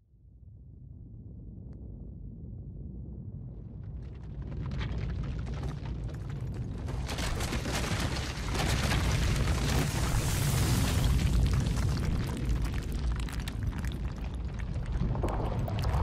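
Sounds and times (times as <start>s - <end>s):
deep continuous rumble: 0.0s - 16.0s
dense cracking and crackling: 3.7s - 16.0s.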